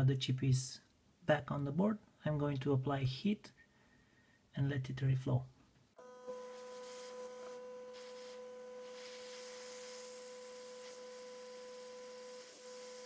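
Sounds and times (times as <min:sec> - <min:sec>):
hot air station whine and hiss: 0:06.5 - 0:13.0.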